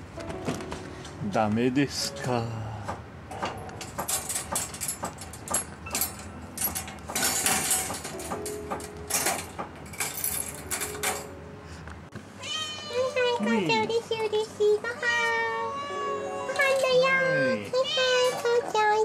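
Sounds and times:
rattling around wire cage: 0:03.3 - 0:11.4.

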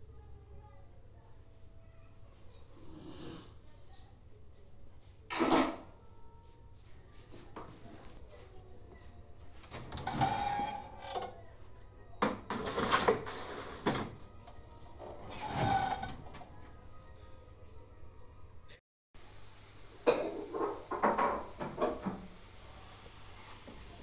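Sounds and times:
baking trays scraping and clattering: 0:09.6 - 0:11.4, 0:12.2 - 0:14.2, 0:14.9 - 0:16.4
oven door shutting: 0:09.8 - 0:11.2.

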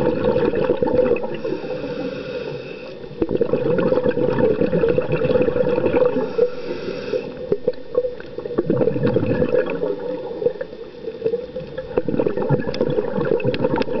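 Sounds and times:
exhaled air bubbling: 0:00.0 - 0:14.0
diver breathing through regulator: 0:01.2 - 0:03.2, 0:06.0 - 0:07.5
crackling clicks: 0:07.3 - 0:14.0.

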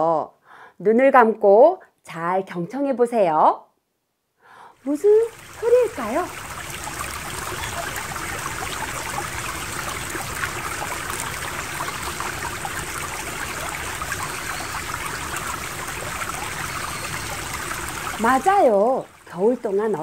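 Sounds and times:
stream babbling over rocks: 0:04.9 - 0:20.0.

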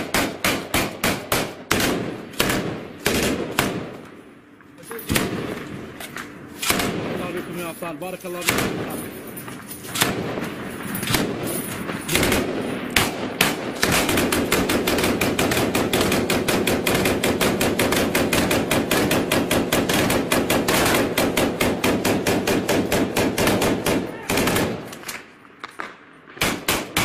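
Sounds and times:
gunshots: 0:00.0 - 0:04.0, 0:05.0 - 0:07.7, 0:08.3 - 0:09.1, 0:09.9 - 0:25.2, 0:26.3 - 0:27.0
automatic machine-gun fire: 0:12.1 - 0:24.9.

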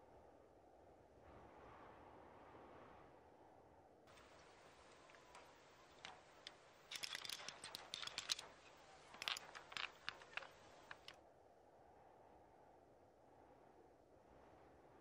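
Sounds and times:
sharp clicks and clacks: 0:04.1 - 0:11.2.

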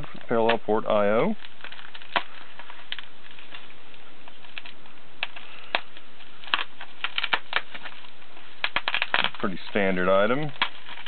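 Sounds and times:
plastic wrapping crinkling: 0:00.0 - 0:11.0
knife cutting plastic: 0:04.3 - 0:11.0.

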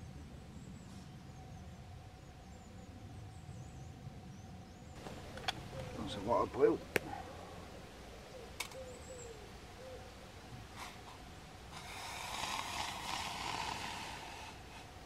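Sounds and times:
low hooting bird call: 0:05.5 - 0:10.3.

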